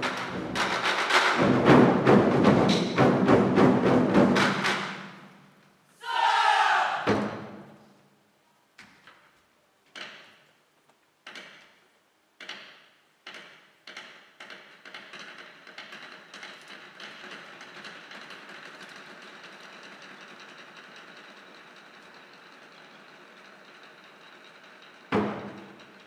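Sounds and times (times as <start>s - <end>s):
barrel drums played with sticks: 0.0s - 5.2s.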